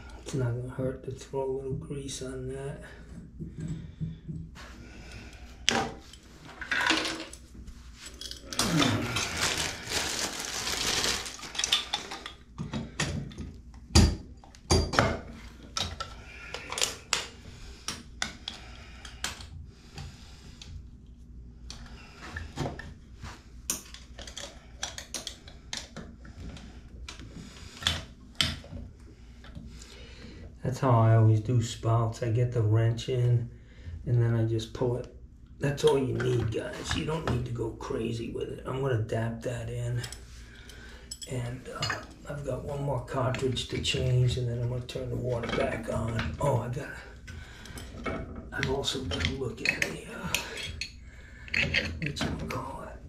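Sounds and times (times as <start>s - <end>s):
metal scraping and rubbing: 47.8s - 52.8s.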